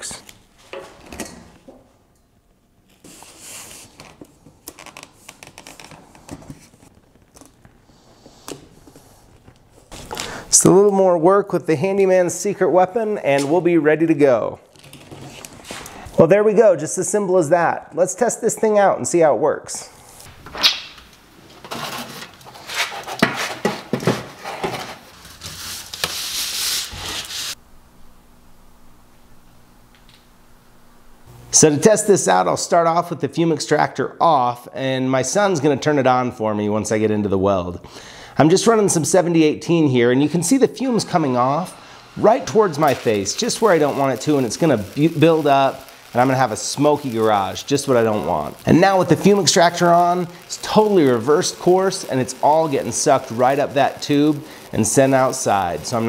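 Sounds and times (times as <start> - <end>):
flexible duct crinkling: 2.8 - 8.0, 9.2 - 10.6, 14.6 - 16.1, 21.5 - 27.6, 42.2 - 56.0
tape unrolling rasp: 2.9 - 10.4, 21.5 - 27.6
tape clicks and rustles: 3.9 - 7.8, 14.6 - 16.0.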